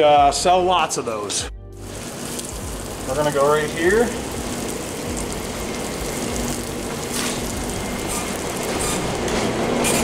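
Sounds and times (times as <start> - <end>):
food sizzling on griddle: 1.8 - 9.2
kitchen hum: 1.8 - 10.0.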